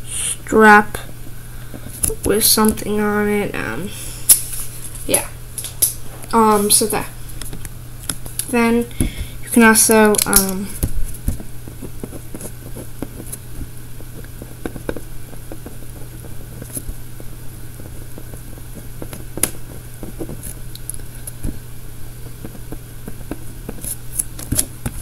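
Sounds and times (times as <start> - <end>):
steady low hum: 0.0 - 25.0
pen scratching and tapping on paper: 10.1 - 21.6, 22.4 - 25.0.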